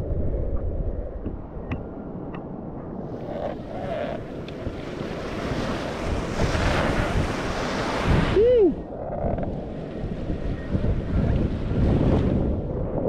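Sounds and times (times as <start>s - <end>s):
wind rushing over microphone: 0.0s - 13.0s
rushing water: 3.0s - 12.8s.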